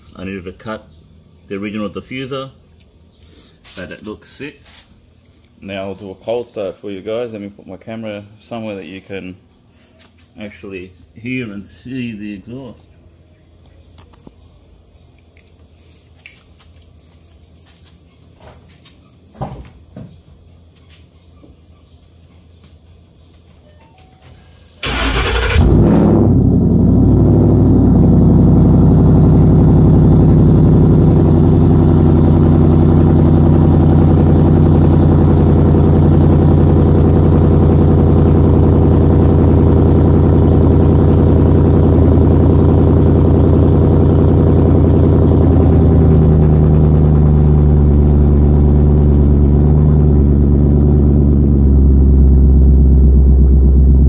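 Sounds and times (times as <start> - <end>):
car engine fast idle: 24.8 - 54.0.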